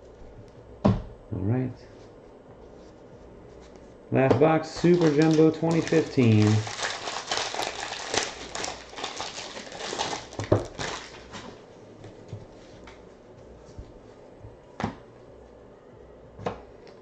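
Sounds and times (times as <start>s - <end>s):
foil packs and cardboard crinkling: 4.6s - 11.6s.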